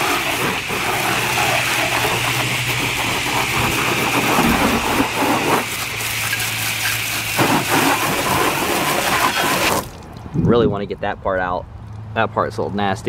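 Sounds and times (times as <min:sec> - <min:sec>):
hose nozzle spraying water: 0:00.0 - 0:10.1.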